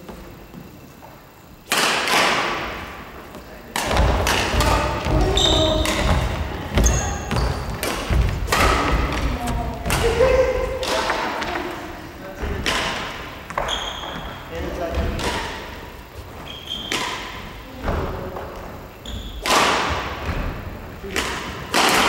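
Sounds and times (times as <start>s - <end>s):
racket striking shuttlecock: 1.7s - 2.8s, 3.7s - 10.2s, 19.4s - 20.3s, 21.1s - 22.0s
shoes squeaking on floor: 4.6s - 10.7s, 13.4s - 15.2s, 15.8s - 17.2s, 18.9s - 19.4s.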